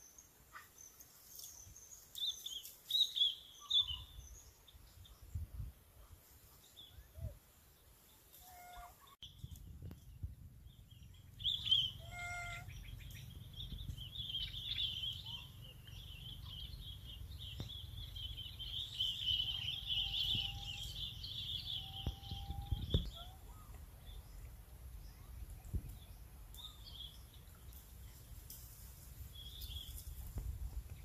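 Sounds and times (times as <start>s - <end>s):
low rumble: 9.3s - 18.8s
birds chattering: 10.7s - 25.6s.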